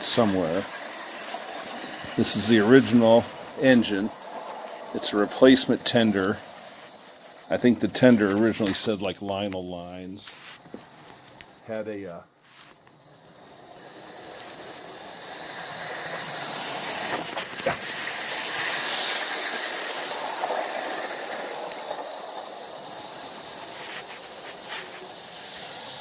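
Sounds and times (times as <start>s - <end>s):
toy train running on track: 0.0s - 26.0s.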